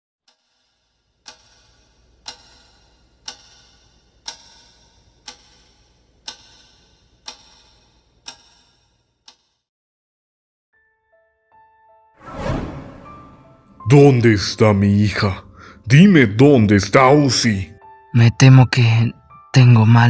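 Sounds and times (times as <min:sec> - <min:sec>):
clock ticking: 0:00.3 - 0:09.6.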